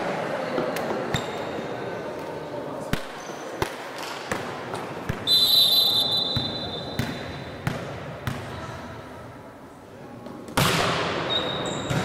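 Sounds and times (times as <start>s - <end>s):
referee's whistle blast: 5.2s - 7.0s
volleyball thumps: 6.3s - 8.5s.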